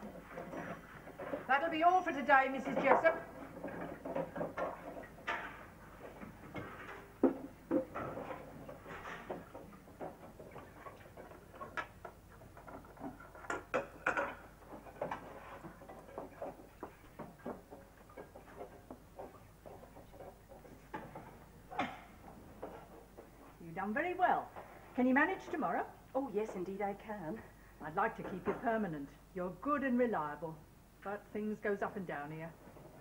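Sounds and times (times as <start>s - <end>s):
crockery clinking and knocking: 13.0s - 15.2s.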